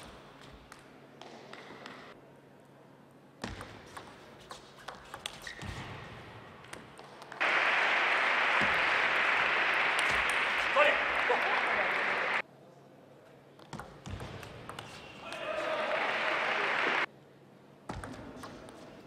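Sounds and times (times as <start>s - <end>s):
crowd applause: 7.4s - 12.4s, 15.2s - 17.1s.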